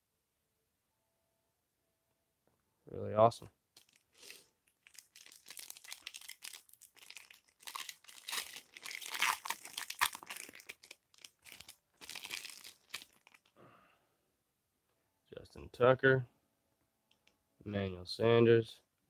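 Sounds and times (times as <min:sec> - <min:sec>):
foil wrapper crinkling and tearing: 0:03.8 - 0:13.5.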